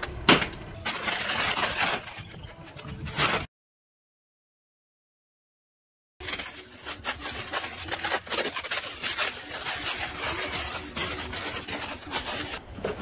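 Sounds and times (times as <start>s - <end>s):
plastic wrapping crinkling: 0.8s - 3.5s, 6.2s - 13.0s.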